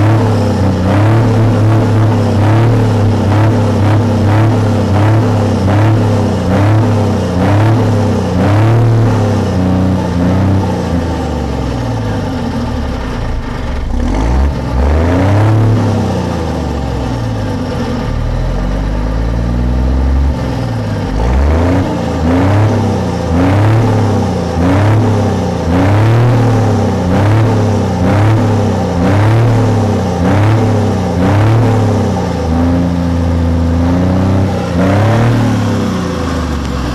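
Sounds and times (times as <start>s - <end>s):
diesel truck engine revving: 0.0s - 36.9s.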